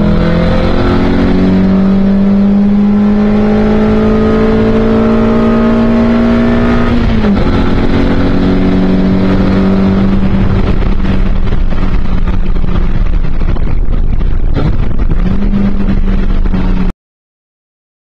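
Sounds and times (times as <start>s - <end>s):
race car engine running: 0.0s - 16.9s
wind and road noise: 0.0s - 16.9s.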